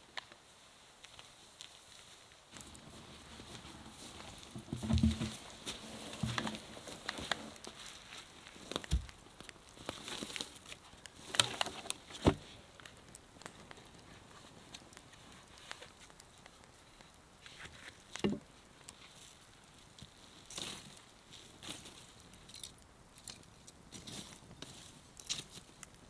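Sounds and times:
wood knocking on ground: 0:04.3 - 0:06.7.

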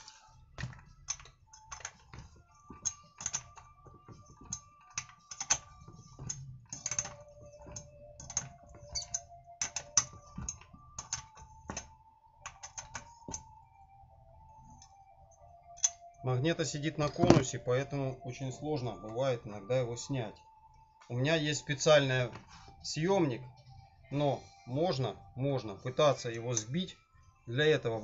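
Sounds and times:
light metallic clicks and clinks: 0:02.8 - 0:03.6.

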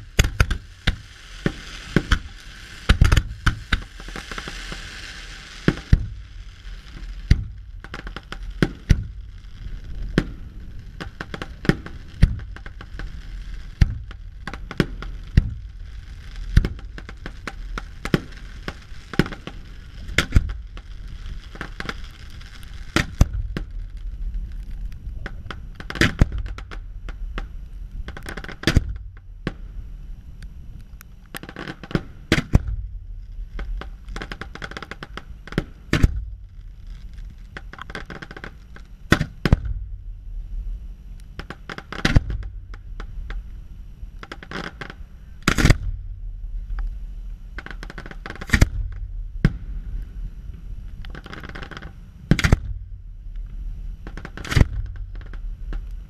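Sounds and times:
firework shells bursting: 0:00.0 - 0:23.8, 0:41.4 - 0:43.4, 0:44.2 - 0:45.9, 0:50.9 - 0:52.8, 0:54.0 - 0:56.0
crackling firework sparkles: 0:00.0 - 0:56.0.

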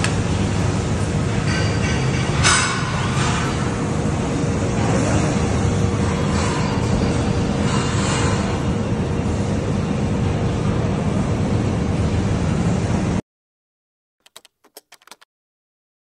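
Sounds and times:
robotic welding noise: 0:01.3 - 0:09.2
keyboard typing clicks: 0:14.2 - 0:15.3.

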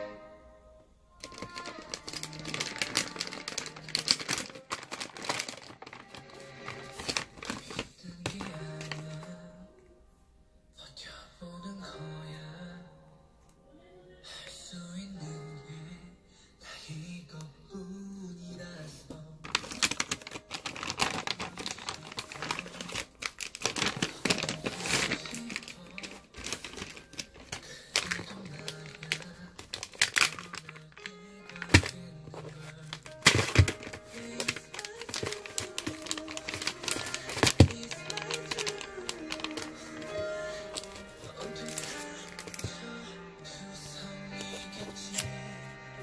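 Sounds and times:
background music: 0:00.0 - 0:46.0
plastic packaging crinkling: 0:01.2 - 0:09.5, 0:19.4 - 0:45.9.

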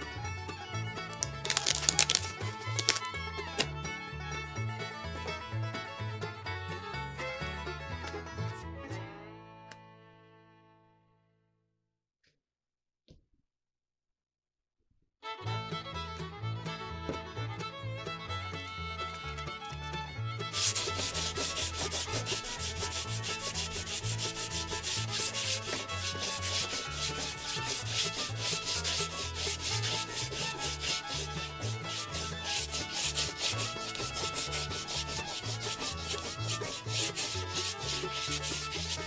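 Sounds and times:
sandpaper rubbing on wood: 0:01.5 - 0:03.0, 0:20.6 - 0:39.0.

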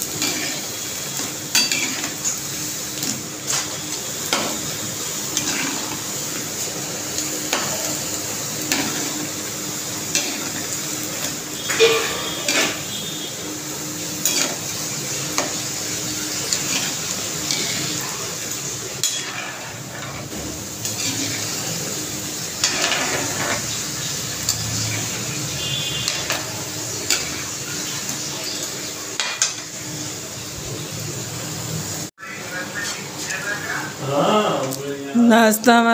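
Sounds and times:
food sizzling in hot oil: 0:00.0 - 0:35.2
metal spoon scraping a pan: 0:00.2 - 0:00.8, 0:01.5 - 0:02.4, 0:05.3 - 0:06.0, 0:11.2 - 0:13.0, 0:14.2 - 0:14.7, 0:16.4 - 0:18.0, 0:19.0 - 0:21.6, 0:22.6 - 0:23.8, 0:24.4 - 0:28.6.

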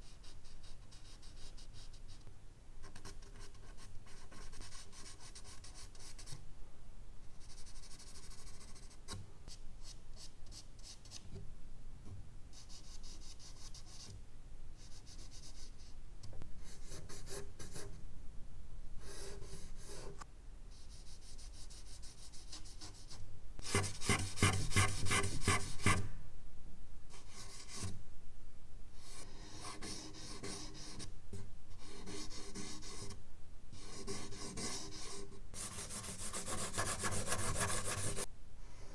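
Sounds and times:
charcoal scratching on paper: 0:20.8 - 0:26.0, 0:29.0 - 0:31.1, 0:31.8 - 0:33.2, 0:33.8 - 0:38.3.

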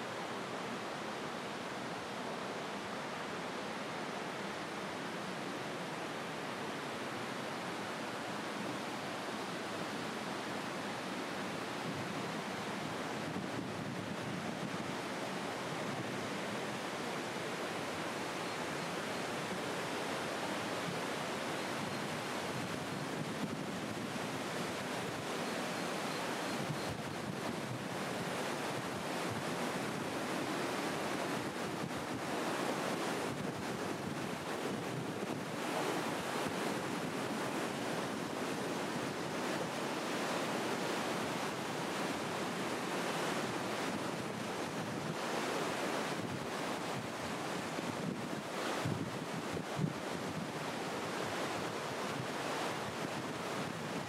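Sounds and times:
fast-flowing water rushing: 0:00.0 - 0:54.0.

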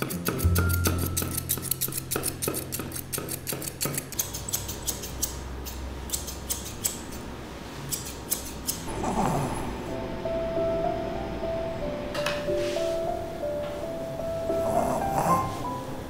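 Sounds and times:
scissors snipping fur: 0:00.0 - 0:07.2, 0:07.9 - 0:09.4.

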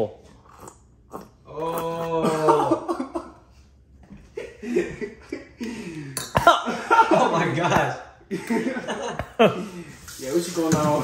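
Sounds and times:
man coughing and spluttering: 0:02.1 - 0:03.4.

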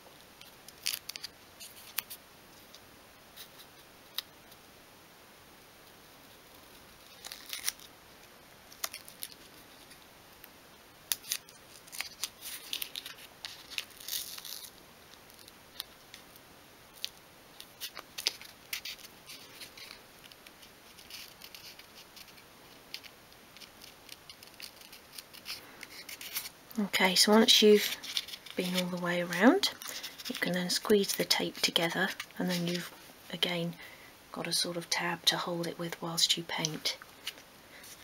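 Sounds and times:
masking tape crackling: 0:05.8 - 0:33.9.

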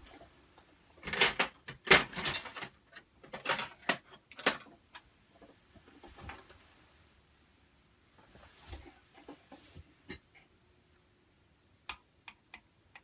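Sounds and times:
handling clicks and rustles: 0:00.0 - 0:06.8.

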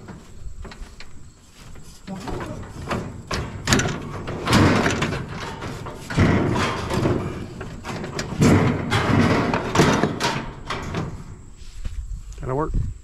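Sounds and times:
metal grinding and rattling: 0:00.0 - 0:11.9
scrap metal knocking: 0:02.0 - 0:11.5.

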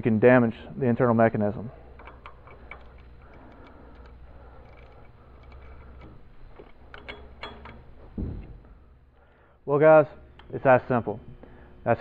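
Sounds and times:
ratchet wrench clicking: 0:02.0 - 0:07.9.

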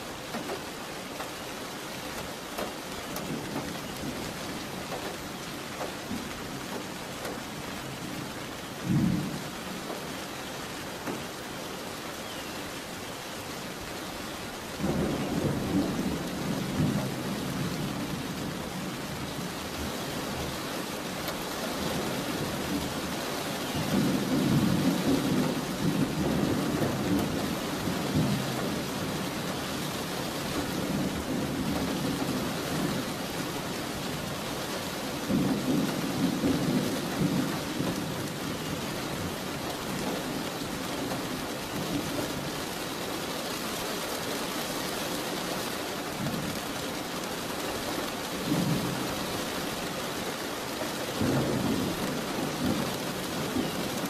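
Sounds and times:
steady rain falling: 0:00.0 - 0:54.0
thunder rumbling: 0:14.8 - 0:20.5, 0:35.3 - 0:40.5, 0:51.2 - 0:54.0.

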